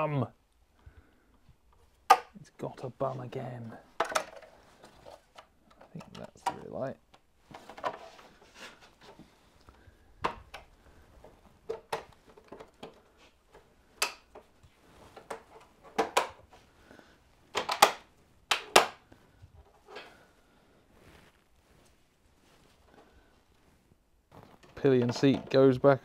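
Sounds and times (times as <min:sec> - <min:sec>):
plastic clicks and knocks: 0:02.1 - 0:02.4, 0:04.0 - 0:08.0, 0:11.6 - 0:14.5, 0:15.2 - 0:16.4, 0:17.5 - 0:19.0.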